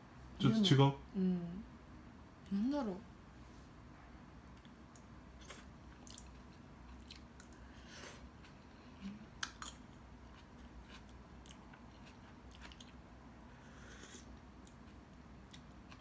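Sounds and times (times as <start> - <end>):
person chewing: 4.5 - 13.1, 13.7 - 16.0.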